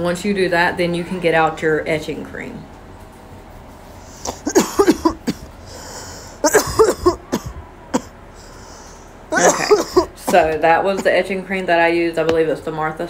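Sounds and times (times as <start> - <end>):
woman coughing: 4.3 - 5.6, 6.4 - 8.1, 9.3 - 11.3
sharp breath in: 5.6 - 6.4, 8.3 - 9.2.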